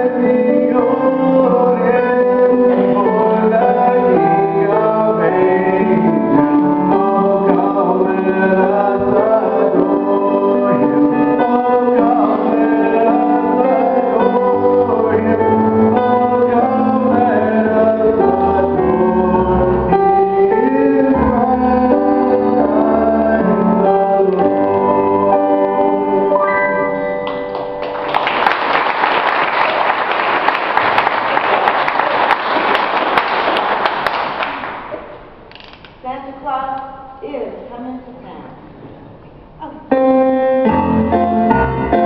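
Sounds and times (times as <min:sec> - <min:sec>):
choir singing in harmony: 0:00.0 - 0:27.1
instrumental accompaniment: 0:00.0 - 0:28.5, 0:39.9 - 0:42.0
audience applause: 0:27.2 - 0:35.0.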